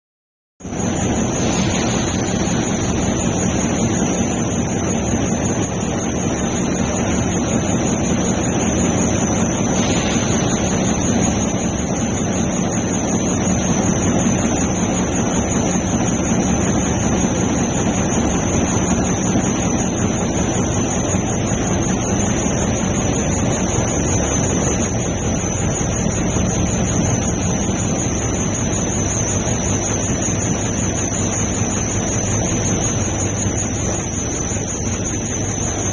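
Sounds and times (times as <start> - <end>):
machinery roar: 0.6 - 35.8
high-pitched machine whine: 0.6 - 35.9.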